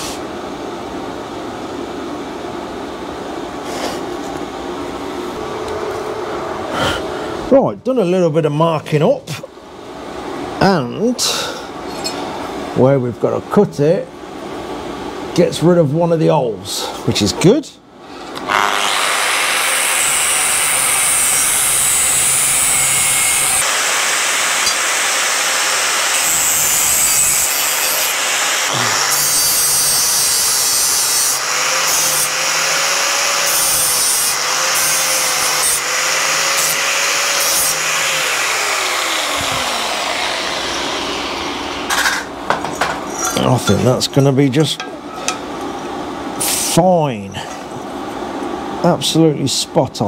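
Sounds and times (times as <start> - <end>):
angle grinder cutting steel: 18.4 - 42.3.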